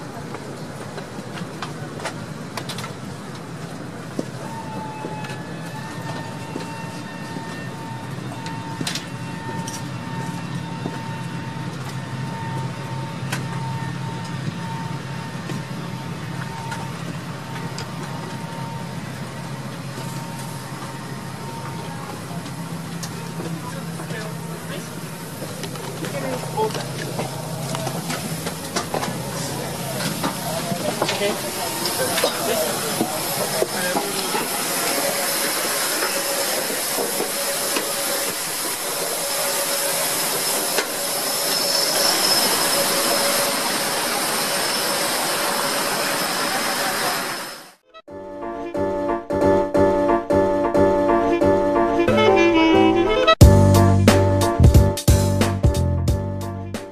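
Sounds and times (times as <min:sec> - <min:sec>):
jet engine rushing hiss: 0:24.5 - 0:47.8.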